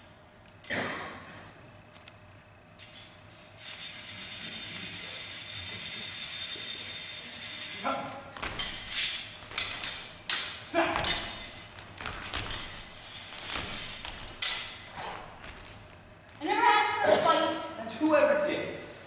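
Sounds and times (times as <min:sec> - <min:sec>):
sword blades scraping together: 0:08.6 - 0:11.7, 0:12.5 - 0:15.3.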